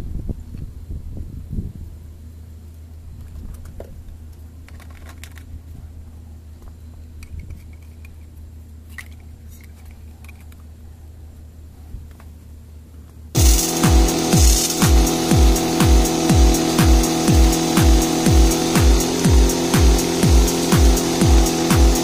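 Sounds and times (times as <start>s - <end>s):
steady low hum: 13.4s - 22.0s.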